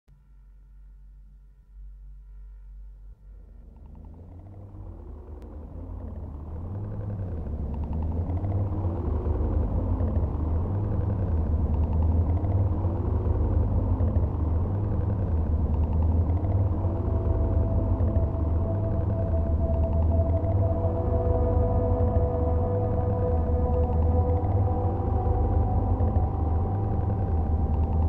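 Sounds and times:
synthesizer drone: 3.1 - 28.0
slow rising and falling synth tones: 3.4 - 28.0
steady higher synth tone: 8.2 - 28.0.

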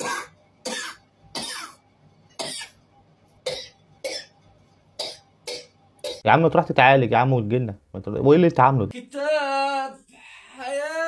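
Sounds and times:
person coughing: 0.0 - 1.8, 2.4 - 2.8, 3.4 - 4.3.

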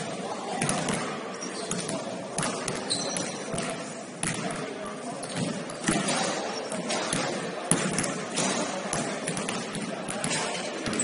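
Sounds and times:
basketball bouncing on court: 1.7 - 4.6, 6.8 - 11.0.

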